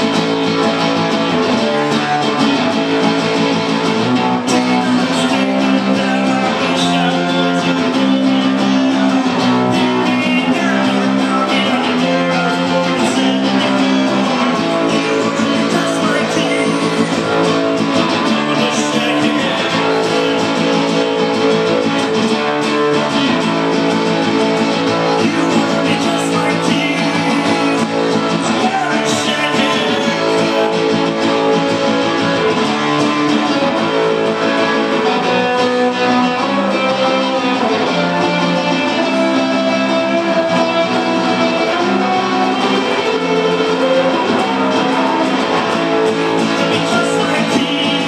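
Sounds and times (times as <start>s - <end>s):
acoustic guitar strumming: 0.0s - 48.0s.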